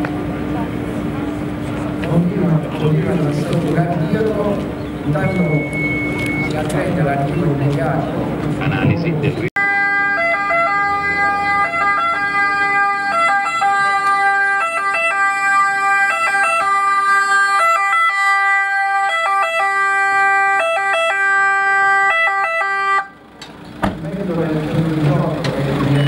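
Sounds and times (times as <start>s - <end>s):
ambulance two-tone siren: 5.2s - 6.7s, 9.6s - 23.3s.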